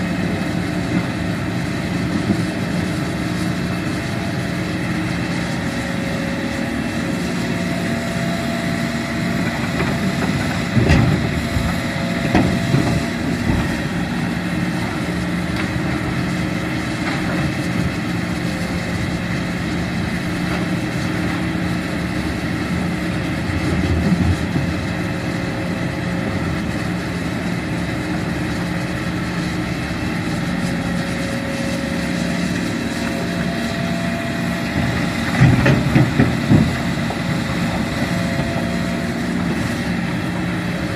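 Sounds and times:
excavator diesel engine running: 0:00.0 - 0:40.9
loud thumps and knocks: 0:34.8 - 0:37.0.

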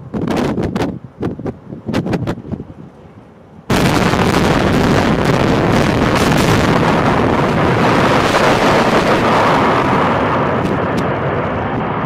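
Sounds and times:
blast noise: 0:03.7 - 0:12.0
building collapsing rumble: 0:03.7 - 0:12.0.

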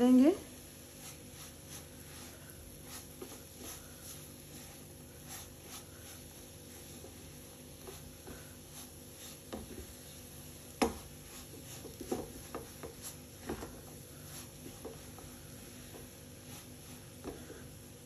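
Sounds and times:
spatula scraping a pan: 0:00.7 - 0:17.8
spatula tapping a pan: 0:09.4 - 0:10.0, 0:10.7 - 0:16.2.

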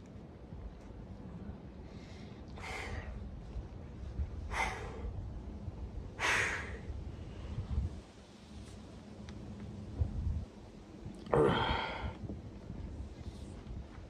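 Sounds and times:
man exhaling forcefully: 0:11.3 - 0:12.2.

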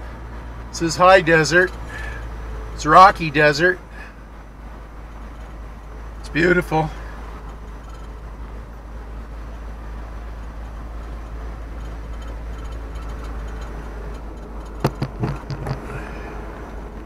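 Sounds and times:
road and engine noise: 0:00.0 - 0:17.0
short knocks and clatters: 0:10.6 - 0:16.1.

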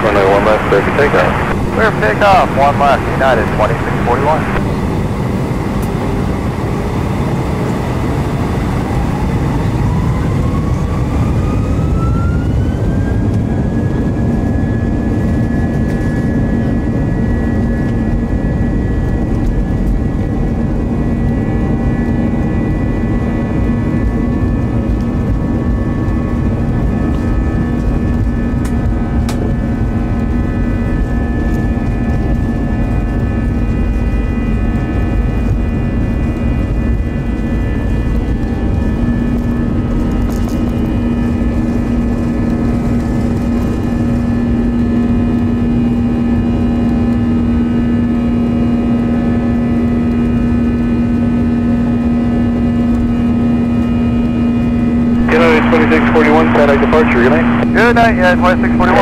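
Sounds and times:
loud low engine roar: 0:00.0 - 0:15.4
jet engine whine: 0:00.0 - 0:59.0.

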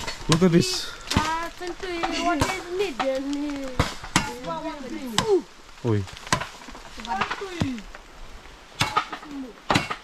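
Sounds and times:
voices: 0:00.3 - 0:08.0, 0:09.0 - 0:09.7
machete hacking bamboo: 0:08.8 - 0:10.0.

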